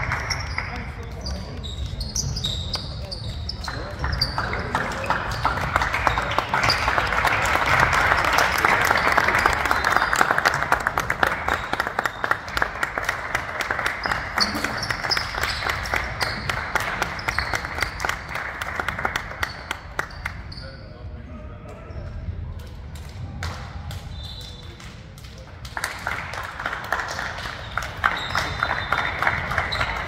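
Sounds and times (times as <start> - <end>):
crowd applauding: 0.0 - 1.5, 3.6 - 20.5, 25.2 - 30.0.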